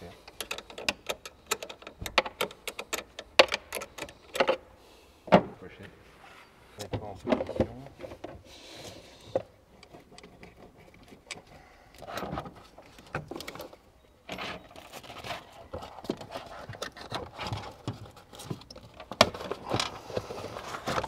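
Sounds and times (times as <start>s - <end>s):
small metallic clicks: 0.2s - 4.6s.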